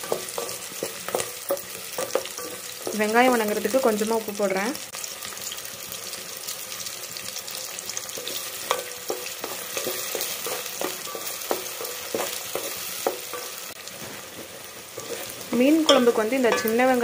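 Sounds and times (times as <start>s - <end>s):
spatula knocking and scraping pot: 0.0s - 3.2s, 8.2s - 13.6s, 15.0s - 17.0s
onions sizzling in hot oil: 0.0s - 17.0s.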